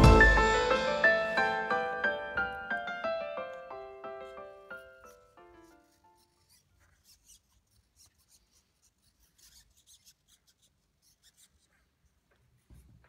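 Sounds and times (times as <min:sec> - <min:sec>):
soft ticks and rubbing: 0:04.7 - 0:13.0.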